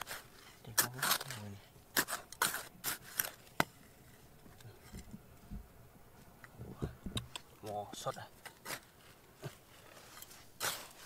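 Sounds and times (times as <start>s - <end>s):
digging tool striking stone: 0.0s - 3.8s, 10.2s - 11.0s.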